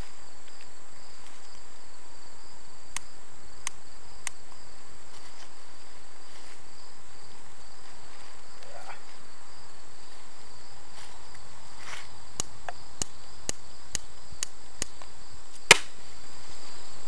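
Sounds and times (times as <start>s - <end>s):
crickets chirring: 0.0s - 17.0s.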